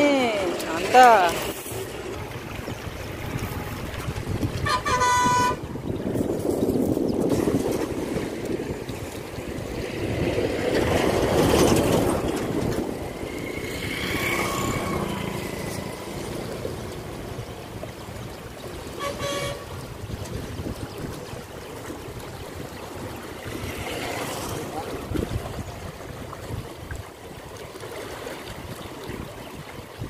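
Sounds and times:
horn-like tone: 4.6 - 5.7, 19.0 - 19.7
outdoor rushing noise: 7.3 - 17.4.

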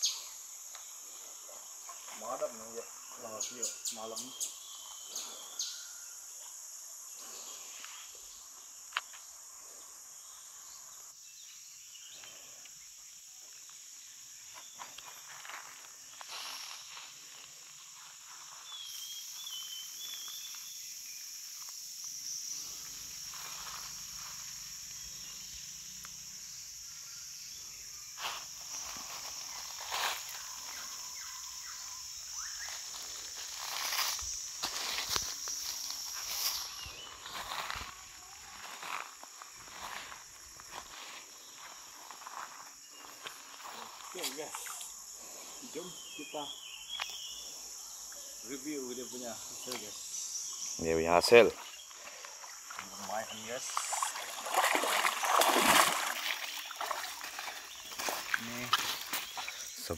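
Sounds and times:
high-pitched insect drone: 0.0 - 59.9
bird chirp: 3.0 - 6.1, 45.8 - 50.9.

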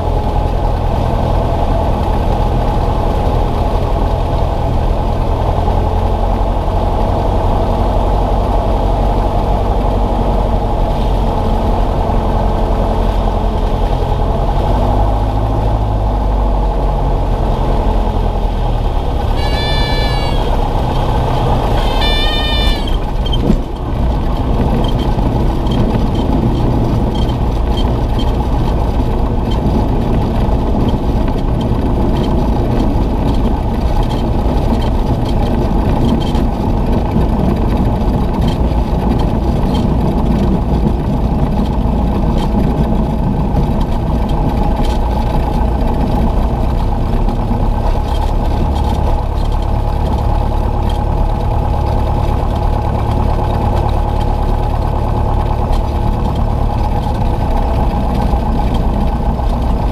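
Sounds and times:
plane engine and propeller droning: 0.0 - 59.9
stall warning horn: 19.2 - 23.5
wheels touching down thump: 19.2 - 28.8.

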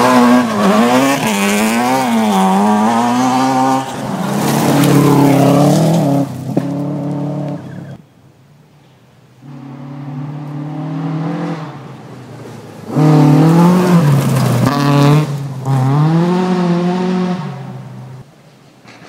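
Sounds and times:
rally car engine revving: 0.0 - 8.0, 9.4 - 18.2
gravel spraying from tyres: 3.8 - 6.9.

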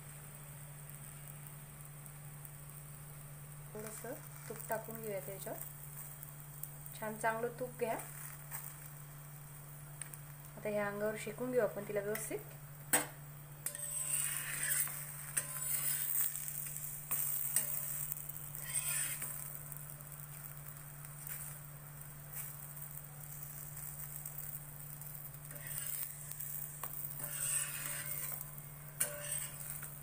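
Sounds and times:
flatbread sizzling in ghee: 0.0 - 30.0
steady low hum: 0.0 - 30.0
spatula scraping griddle: 8.0 - 9.0, 13.6 - 21.7, 22.3 - 30.0.

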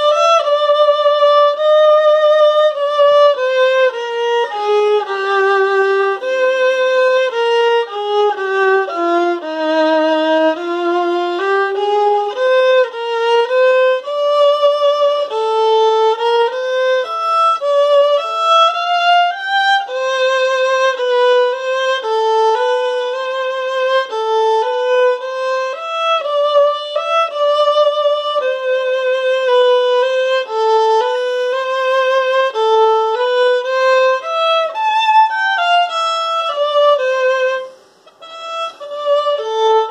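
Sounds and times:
solo violin melody: 0.0 - 39.9.

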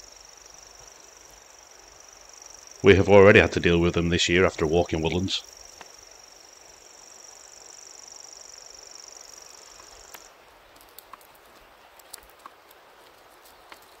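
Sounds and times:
faint scattered clicks: 9.7 - 14.0.

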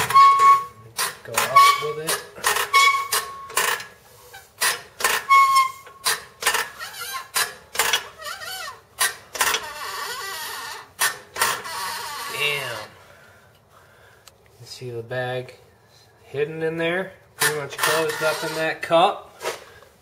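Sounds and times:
brief squeak: 0.0 - 0.8
floor jack clanking and creaking: 0.0 - 12.6, 17.4 - 18.8.

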